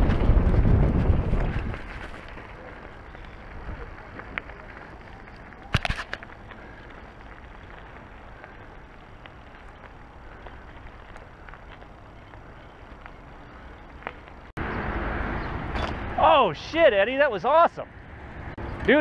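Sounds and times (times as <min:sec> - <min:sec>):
bike tyres rumbling on concrete: 0:00.0 - 0:14.6.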